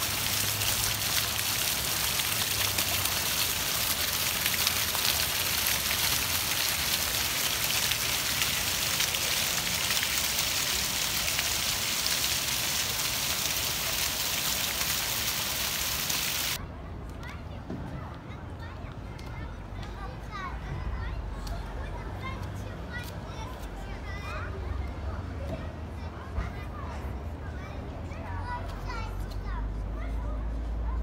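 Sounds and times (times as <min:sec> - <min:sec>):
fountain water splashing on paving: 0:00.0 - 0:16.6.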